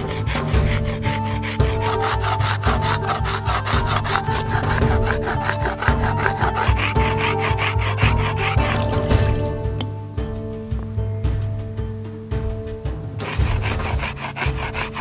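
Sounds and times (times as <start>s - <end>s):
stone grinding on wet stone: 0.0s - 9.9s, 13.2s - 15.0s.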